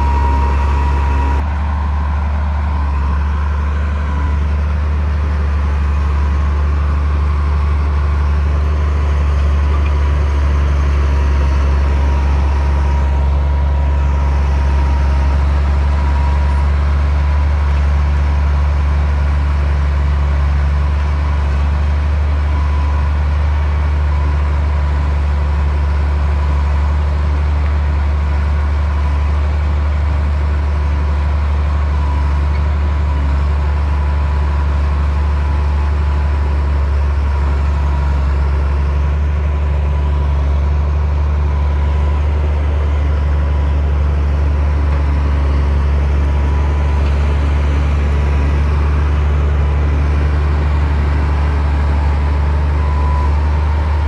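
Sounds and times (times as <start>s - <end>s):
bulldozer diesel engine droning: 0.0s - 54.0s.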